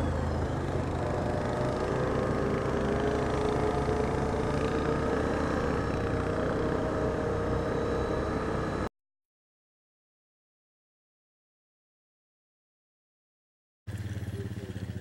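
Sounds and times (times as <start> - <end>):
atv engine running: 0.0 - 8.9, 13.9 - 15.0.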